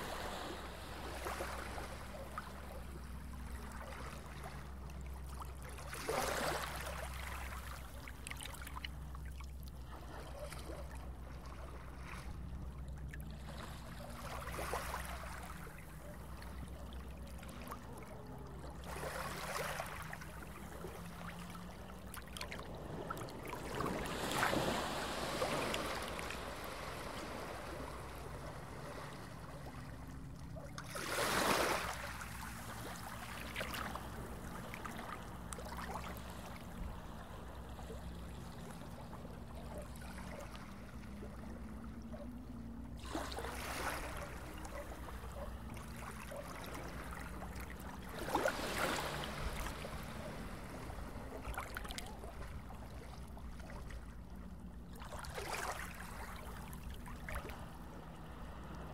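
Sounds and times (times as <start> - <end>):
low underwater drone: 0.0 - 58.9
swells of water noise: 0.0 - 58.9.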